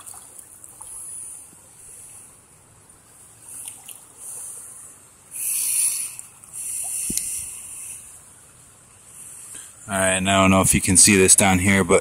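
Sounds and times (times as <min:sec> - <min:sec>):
pond water trickling and splashing: 0:00.0 - 0:08.1.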